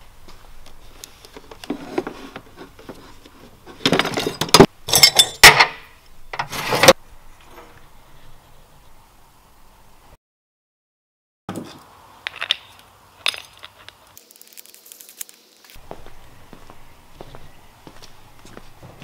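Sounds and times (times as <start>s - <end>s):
metal tools clattering in drawer: 3.8s - 5.8s.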